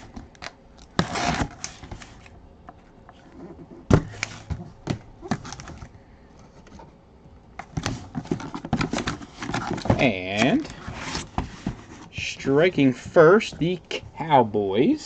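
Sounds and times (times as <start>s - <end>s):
box handling clicks and knocks: 0.0s - 5.9s, 7.6s - 12.1s
cardboard flap rustling: 7.7s - 12.1s.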